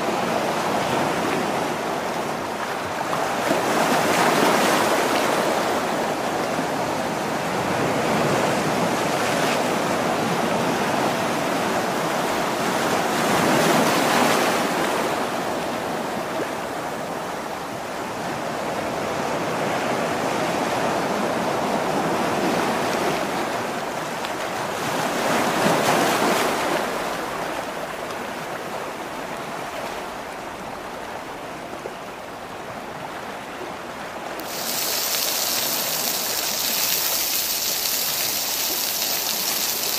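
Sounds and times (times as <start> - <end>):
sea waves washing onto rocks: 0.0 - 16.2, 19.7 - 28.4, 34.3 - 39.9.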